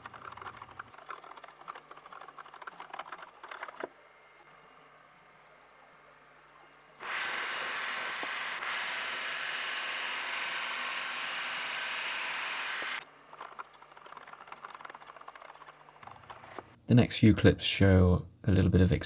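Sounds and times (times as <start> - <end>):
drill boring into metal: 7.0 - 13.0.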